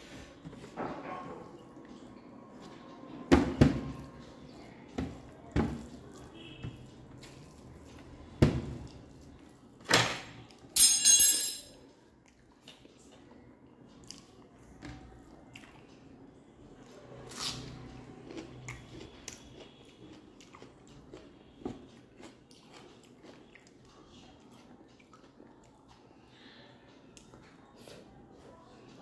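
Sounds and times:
chewing: 12.2s - 26.2s.

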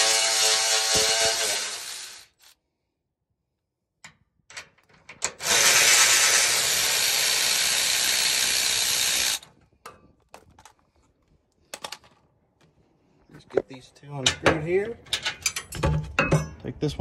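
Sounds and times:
electric ratchet running: 0.0s - 2.5s, 5.3s - 9.5s.

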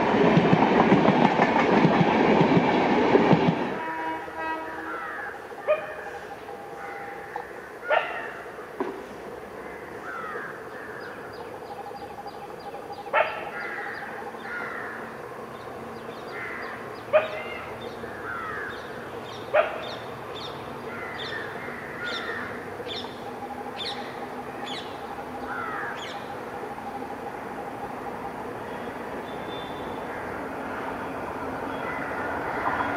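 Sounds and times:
crows cawing: 4.8s - 5.4s, 6.8s - 8.4s, 9.6s - 11.3s, 13.3s - 15.2s, 16.3s - 18.9s, 20.9s - 22.7s, 25.4s - 26.3s, 30.1s - 30.4s, 31.7s - 32.9s.

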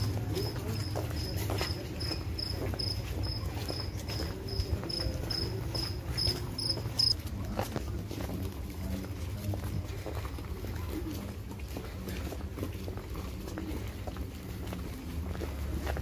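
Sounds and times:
soft footsteps: 0.0s - 16.0s
cricket chirping: 6.6s - 7.2s.

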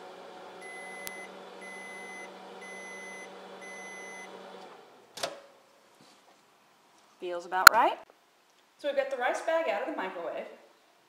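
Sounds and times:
microwave oven humming: 0.0s - 5.0s
high beeps: 0.6s - 4.3s.

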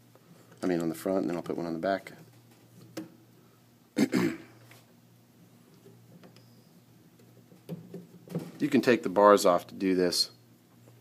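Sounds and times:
person clearing throat: 4.0s - 4.6s.

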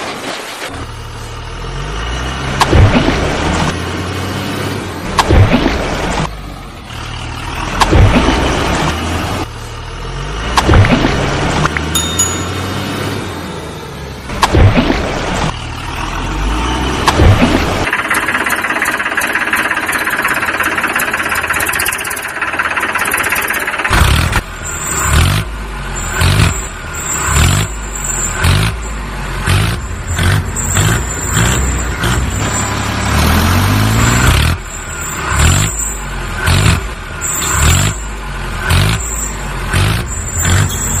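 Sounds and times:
vehicle engine revving: 23.8s - 41.0s.

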